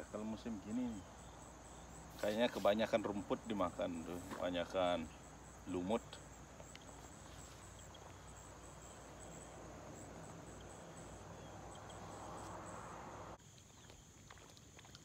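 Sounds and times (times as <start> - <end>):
insects chirring: 0.0 - 15.0
soft even hiss: 1.7 - 9.4.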